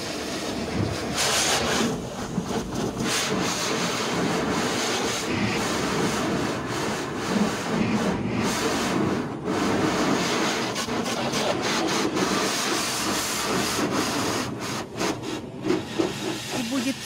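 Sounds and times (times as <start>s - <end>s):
high-pressure water spray on car: 0.0s - 17.0s.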